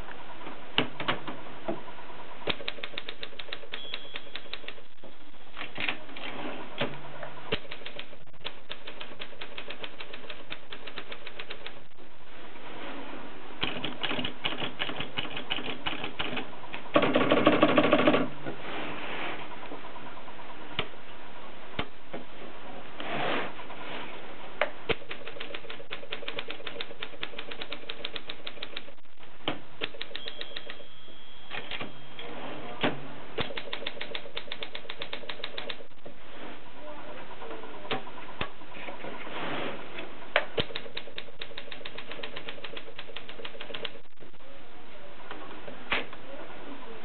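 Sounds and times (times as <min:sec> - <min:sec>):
manual typewriter keys clacking: 0:02.5 - 0:04.8, 0:07.5 - 0:11.8, 0:24.9 - 0:29.0, 0:29.8 - 0:30.8, 0:33.4 - 0:35.8, 0:40.6 - 0:44.0.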